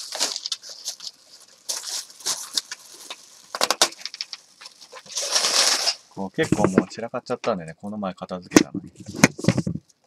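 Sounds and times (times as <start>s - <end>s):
plastic bag rustling: 0.0s - 7.0s.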